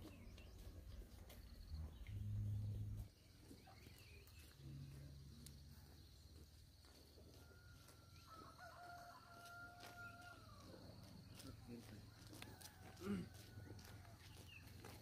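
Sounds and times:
rooster crowing: 7.3 - 10.8, 12.2 - 14.2.

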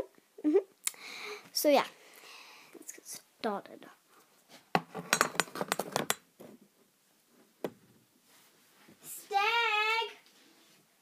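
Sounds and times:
handling clicks and knocks: 4.8 - 6.3.

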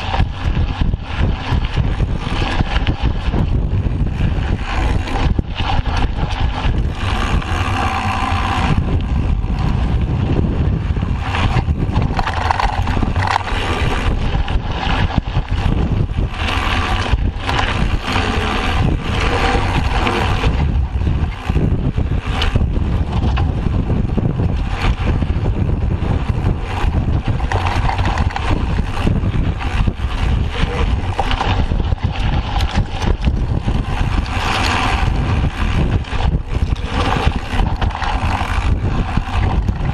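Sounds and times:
bike rattling over bumps: 0.0 - 39.9
wind buffeting microphone: 0.0 - 39.9
tyres rolling on dirt: 24.7 - 39.9.

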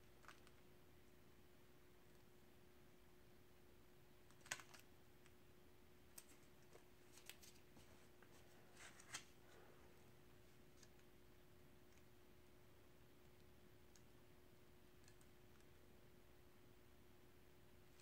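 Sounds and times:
paper clicks and rustles: 4.3 - 4.9, 6.2 - 7.9, 8.8 - 9.4.

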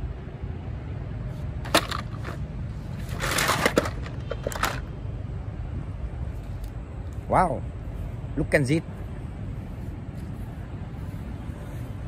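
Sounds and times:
rustling crunch: 1.3 - 4.8
low wind rumble on microphone: 4.3 - 12.0.

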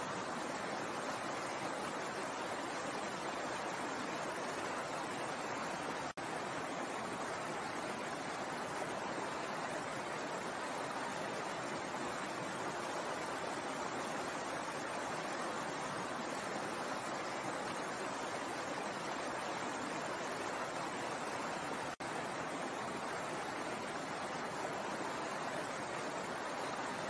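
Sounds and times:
stream flowing over rocks: 0.0 - 27.0.

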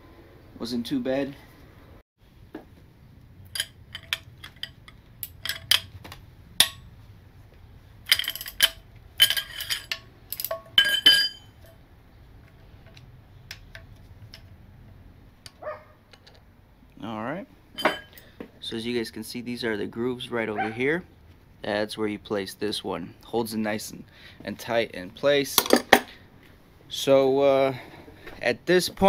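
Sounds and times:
steel wrenches clinking on metal: 3.5 - 6.0, 6.6 - 6.9, 8.0 - 11.8, 17.8 - 18.2.

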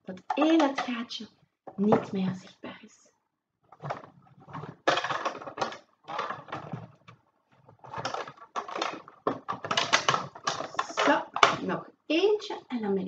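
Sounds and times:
rubber bands stretching: 3.6 - 11.7.

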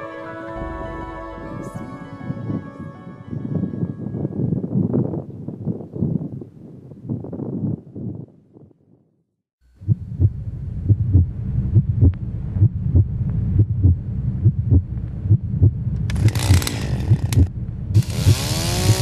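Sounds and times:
low heartbeat-like throb: 9.8 - 19.0
chainsaw revving: 16.1 - 19.0.

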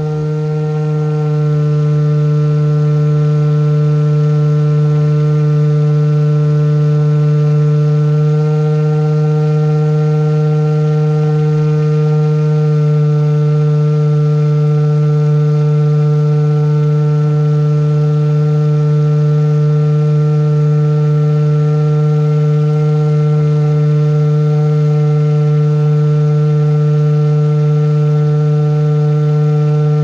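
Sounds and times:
airboat motor and propeller drone: 0.0 - 30.0.

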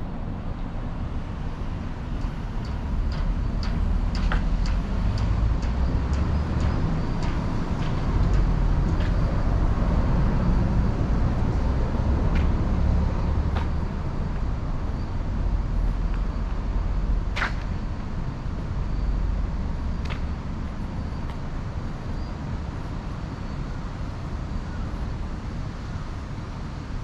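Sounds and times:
road traffic rumble: 0.0 - 27.0
light sharp ticks: 2.2 - 9.6, 12.3 - 12.6, 20.0 - 20.4.

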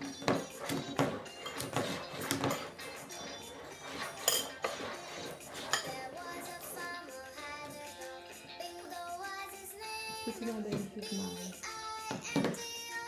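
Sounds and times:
music: 0.0 - 13.0
plastic cup knocking on tray: 10.7 - 10.9, 12.1 - 12.6.

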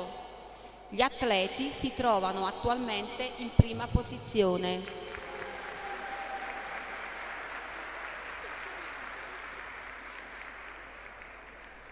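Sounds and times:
audience applauding: 4.8 - 11.9.

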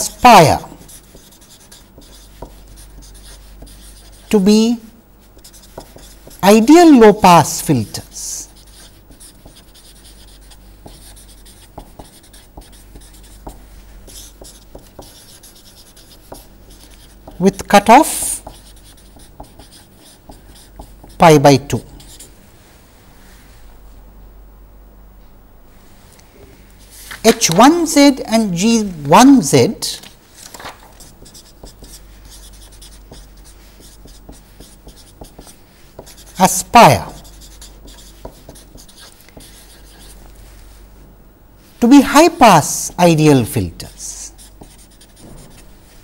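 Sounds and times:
marker writing on paper: 0.0 - 4.5, 5.2 - 22.3, 30.9 - 40.8, 41.8 - 46.0.

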